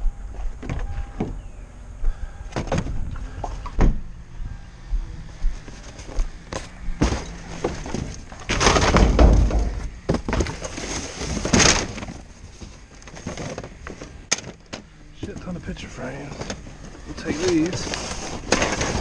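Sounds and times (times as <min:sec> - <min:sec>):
junk clattering in metal dumpster: 0:06.0 - 0:15.5, 0:16.3 - 0:19.0.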